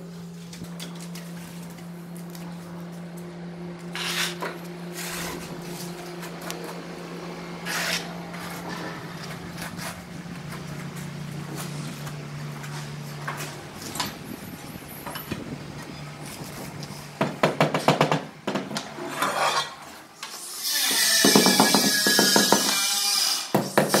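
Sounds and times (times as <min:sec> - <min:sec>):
steady low hum: 0:00.0 - 0:20.3
trowel scraping mortar: 0:04.0 - 0:05.5, 0:07.6 - 0:10.0.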